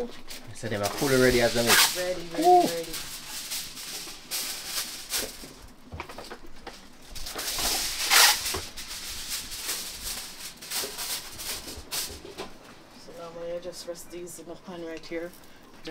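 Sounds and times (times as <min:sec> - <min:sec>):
chicken sizzling on a grill: 0:00.0 - 0:05.7, 0:06.9 - 0:12.0.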